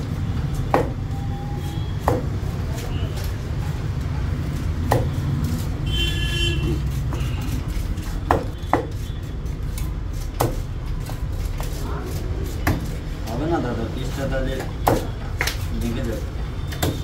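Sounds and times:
cleaver chopping fish on wood: 0.6s - 1.0s, 2.0s - 2.9s, 4.8s - 5.2s, 6.7s - 9.0s, 9.7s - 11.8s, 12.4s - 13.0s, 14.5s - 15.7s, 16.7s - 17.0s.

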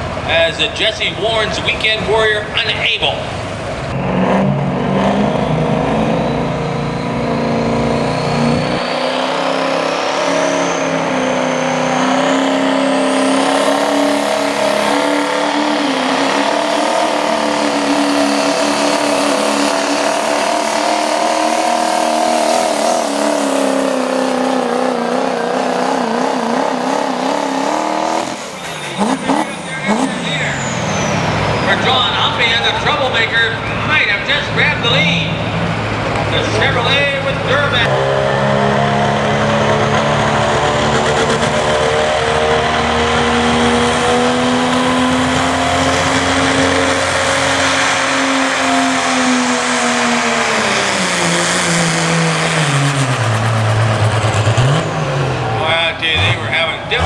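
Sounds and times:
heavy diesel engine at full throttle: 0.0s - 57.0s
announcer over loudspeaker: 0.3s - 3.3s, 31.6s - 35.5s, 36.2s - 38.9s
high turbo whistle: 5.2s - 24.0s.

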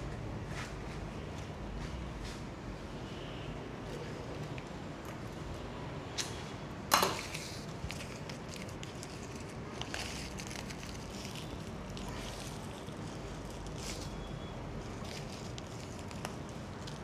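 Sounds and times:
low steady background noise: 0.0s - 17.0s
sharp crackling rustle: 7.3s - 14.2s
rustling of flower stems: 7.3s - 17.0s.

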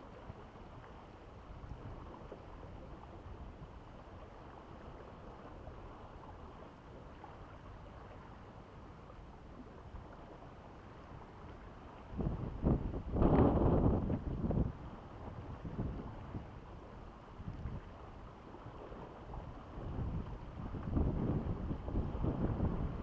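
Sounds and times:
sea against rocks: 0.0s - 23.0s
wind on microphone: 12.0s - 23.0s.

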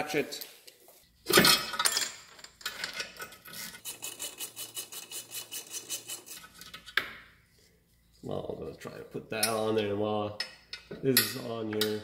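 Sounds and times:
metal tool clatter: 1.3s - 4.6s.

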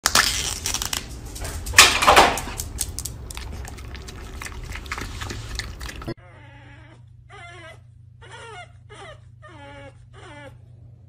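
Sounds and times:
foil lid tearing: 0.0s - 1.5s
light crinkling clicks: 0.1s - 3.5s.

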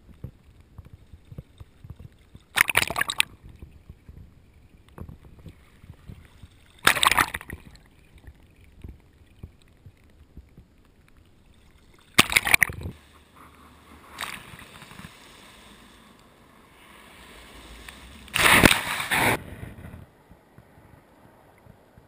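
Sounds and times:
shallow sea water sloshing: 0.0s - 19.3s
waves splashing: 2.4s - 3.4s, 5.5s - 9.4s, 12.0s - 19.6s.

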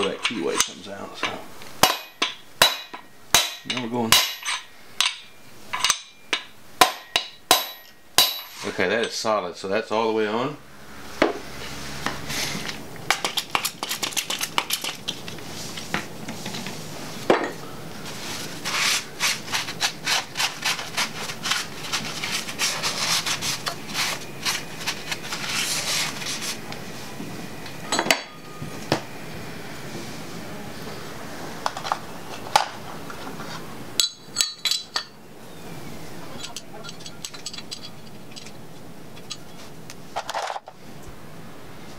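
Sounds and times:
towel rubbing metal: 18.1s - 26.7s.

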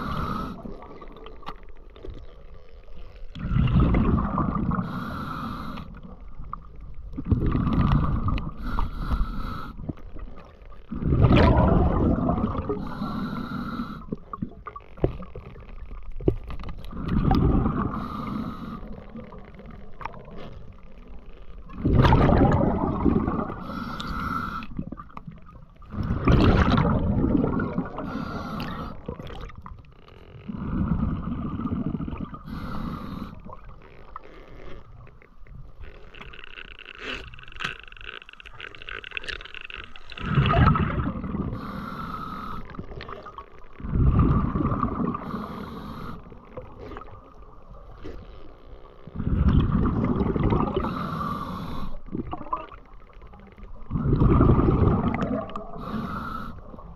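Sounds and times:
exhaled bubbles underwater: 3.3s - 29.8s, 30.5s - 33.8s, 39.2s - 47.9s, 49.1s - 56.9s
regulator inhalation hissing: 4.8s - 6.0s, 12.8s - 14.1s, 17.9s - 19.0s, 32.5s - 33.5s, 41.5s - 42.7s, 45.2s - 46.3s, 50.8s - 52.0s, 55.8s - 56.8s.

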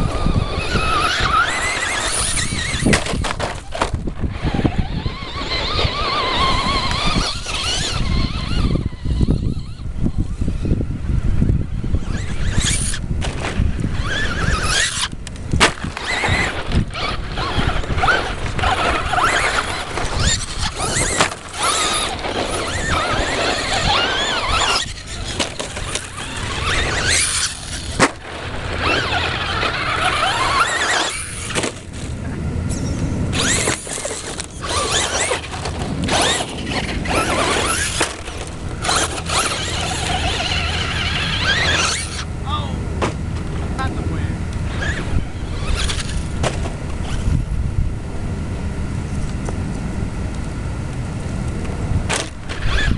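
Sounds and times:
electric motors whining: 0.0s - 52.9s.

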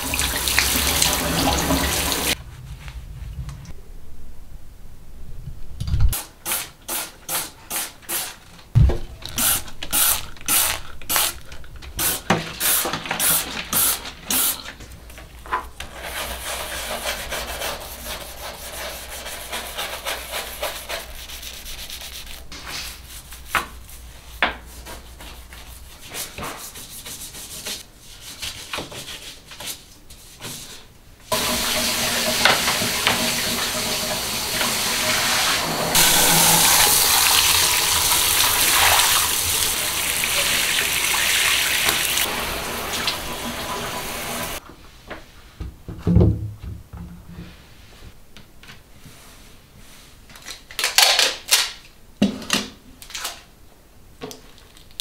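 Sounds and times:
scrubbing bathtub: 0.0s - 2.4s, 15.8s - 44.6s
shower head spraying water: 0.0s - 2.4s, 31.3s - 44.6s.

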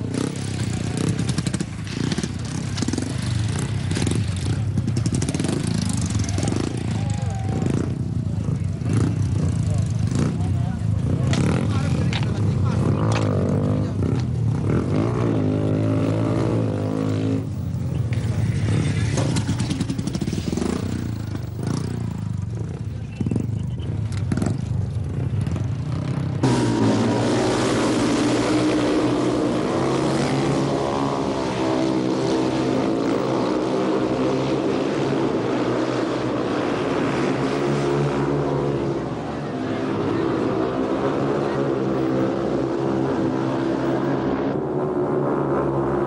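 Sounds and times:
motorcycle engines revving: 0.0s - 46.0s.

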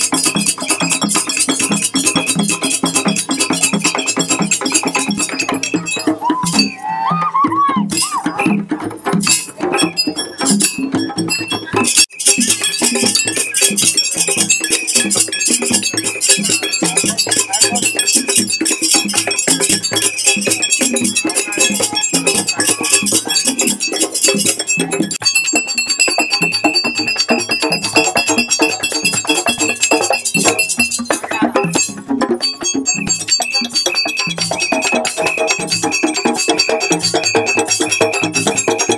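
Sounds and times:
hand drumming: 0.0s - 38.9s.

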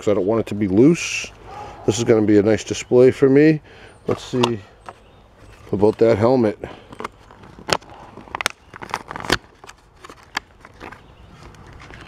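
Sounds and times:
plastic packaging crinkling: 6.9s - 12.0s.

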